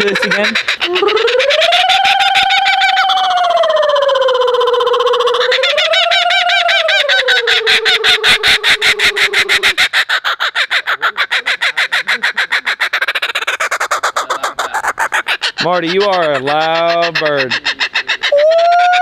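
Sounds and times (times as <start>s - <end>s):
kookaburra laughing call: 0.0s - 19.0s
person hooting: 0.8s - 9.8s, 18.3s - 19.0s.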